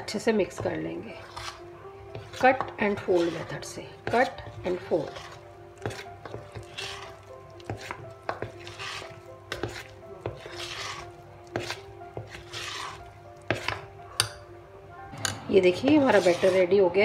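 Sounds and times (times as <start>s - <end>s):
spoon swishing through batter: 0.5s - 14.2s, 15.8s - 16.8s
spoon clinking against metal bowl: 13.5s - 14.5s.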